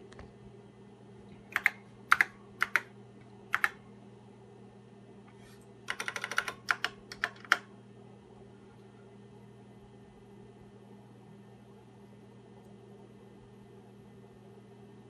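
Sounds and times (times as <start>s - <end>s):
keyboard key clicks: 1.5s - 2.9s, 3.5s - 3.8s, 5.9s - 7.6s.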